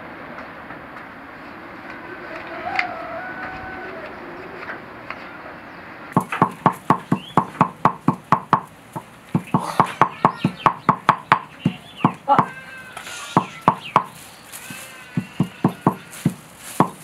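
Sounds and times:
stone pestle pounding in mortar: 6.2 - 8.7, 15.2 - 17.0.

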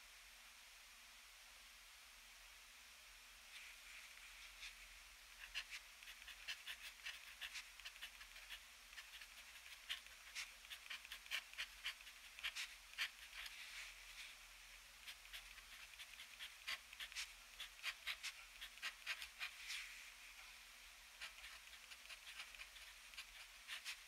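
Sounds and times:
pen nib scratching on paper: 5.4 - 13.6, 15.0 - 19.8, 21.2 - 24.0.

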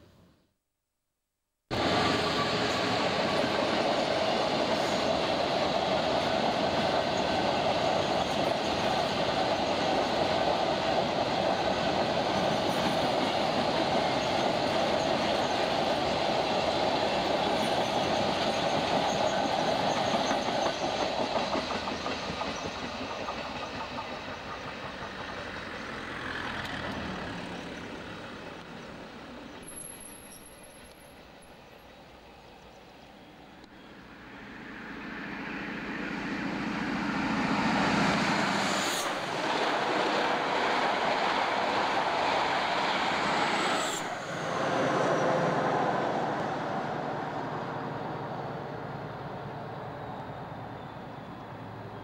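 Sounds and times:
freight train rumbling past: 1.7 - 52.0
train wheels clattering on rails: 1.8 - 27.9.

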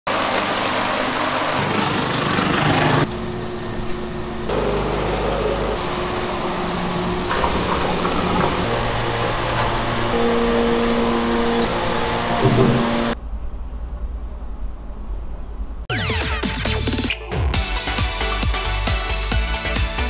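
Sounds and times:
food factory machinery drone: 0.1 - 15.8.

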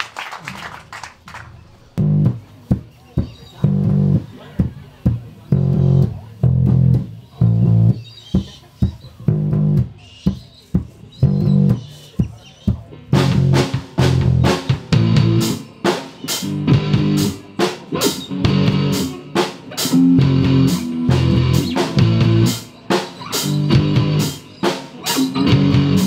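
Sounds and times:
drum kit: 2.0 - 26.0
electric bass guitar riff: 3.7 - 4.2, 5.5 - 8.0, 9.3 - 9.9, 13.0 - 26.0.

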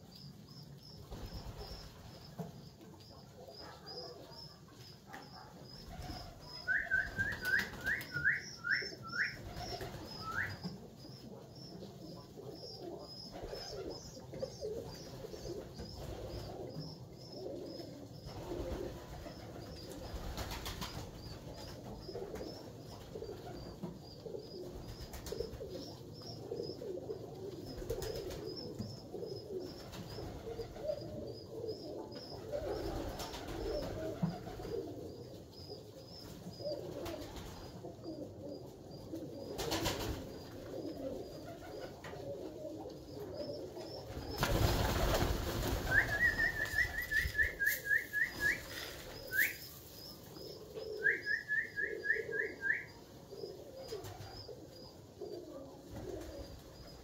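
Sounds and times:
pigeons cooing: 1.0 - 57.0
wings flapping: 5.8 - 10.7, 18.3 - 22.5, 27.8 - 28.5, 32.5 - 34.8, 39.6 - 40.3, 44.1 - 49.6.

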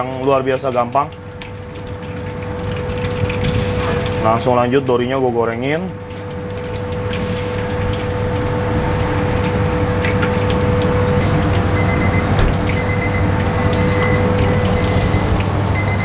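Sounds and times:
fish sizzling in hot oil: 0.0 - 5.0, 5.9 - 16.0.

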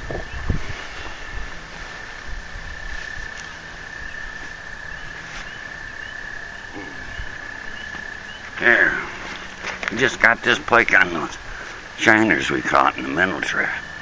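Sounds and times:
low thumps: 2.4 - 10.8.

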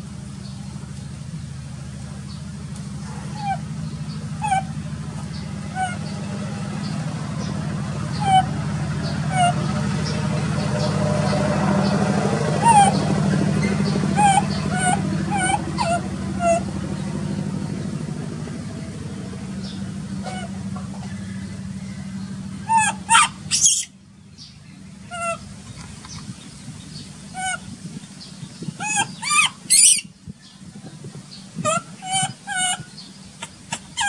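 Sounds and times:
low hum: 0.0 - 34.0
baby monkey crying: 3.2 - 3.7, 4.3 - 6.1, 8.1 - 8.6, 9.2 - 9.7, 11.8 - 16.7, 20.2 - 20.6, 22.6 - 23.9, 25.1 - 25.5, 27.3 - 27.8, 28.6 - 30.1, 31.6 - 34.0.

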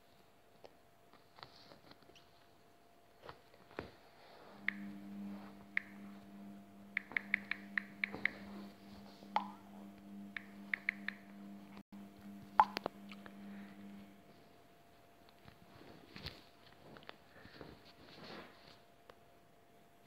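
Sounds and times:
faint steady hum: 0.0 - 20.0
taps on phone screen keyboard: 7.0 - 8.4, 10.3 - 11.2.

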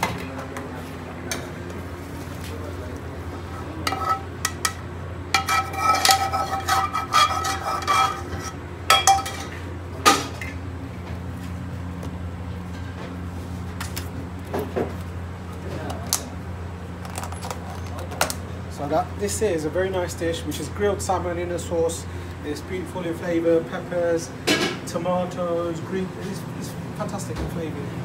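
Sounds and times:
metal spoon scraping frying pan: 3.9 - 9.6.

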